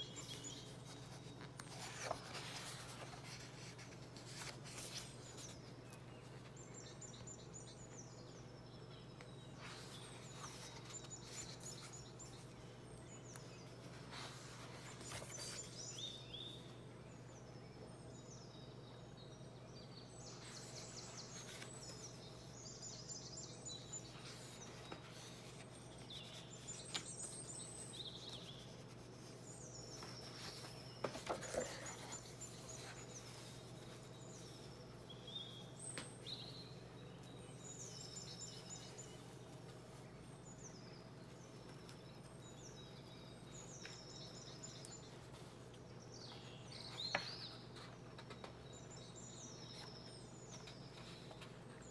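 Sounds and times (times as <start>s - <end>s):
book pages rustling: 0.0s - 7.4s, 9.2s - 16.6s, 20.3s - 22.7s, 23.7s - 36.6s, 41.2s - 51.9s
bird chirping: 0.0s - 51.9s.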